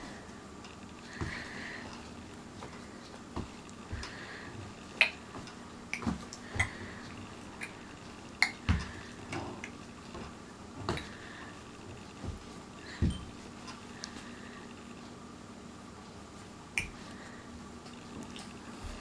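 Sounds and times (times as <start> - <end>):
soft thumps of feet: 1.1 - 1.6, 2.5 - 4.3, 8.6 - 9.1, 12.2 - 13.5.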